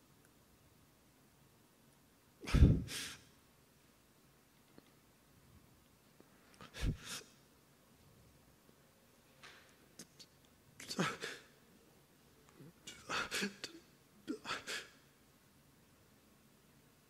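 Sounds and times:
sniffs: 6.6 - 7.3.

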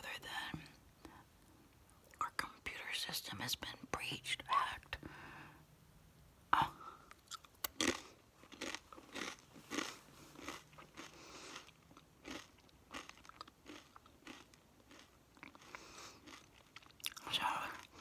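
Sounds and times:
person chewing crunchy food: 7.1 - 18.0.

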